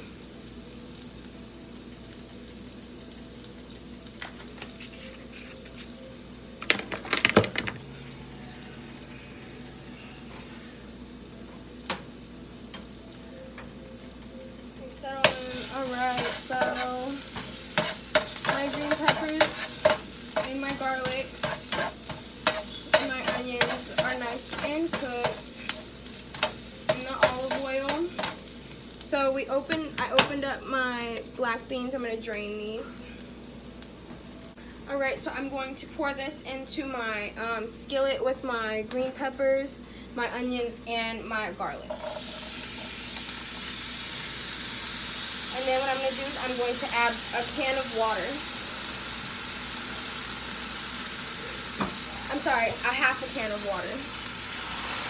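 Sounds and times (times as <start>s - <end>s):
vegetables sizzling in oil: 0.0s - 55.0s
utensil scraping a pan: 15.6s - 25.4s.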